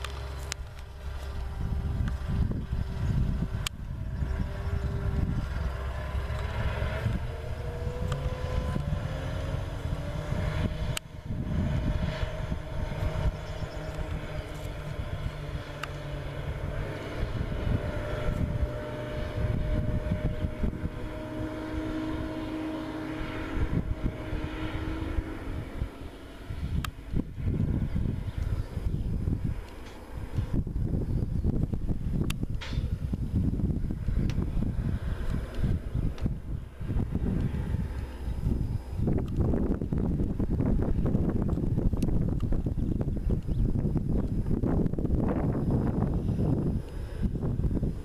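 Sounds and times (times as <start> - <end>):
diesel engine droning: 0.0 - 48.0.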